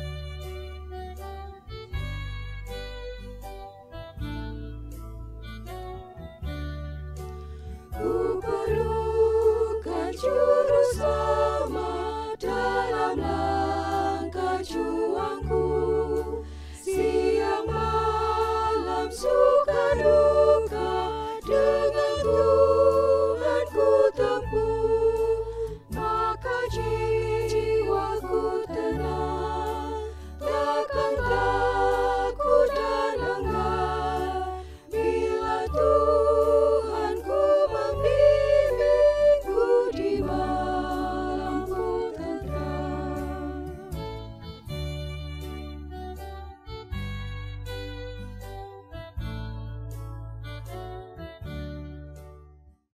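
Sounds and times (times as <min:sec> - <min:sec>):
low sustained bass: 0:00.0 - 0:52.5
women's choir singing a hymn: 0:07.9 - 0:44.0.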